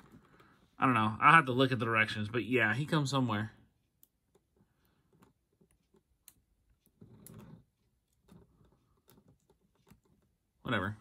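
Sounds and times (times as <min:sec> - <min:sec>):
soft handling sounds: 0:00.0 - 0:00.8.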